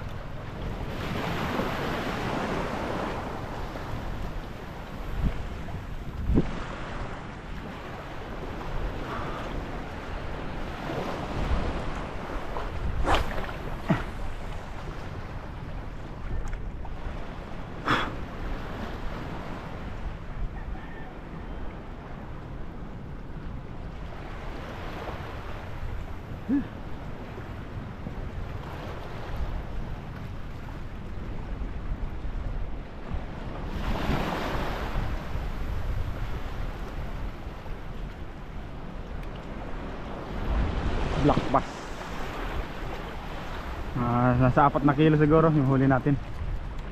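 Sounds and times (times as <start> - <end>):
choppy water: 0.0 - 46.9
wind rumbling on microphone: 0.0 - 46.9
short swishes: 12.5 - 14.3.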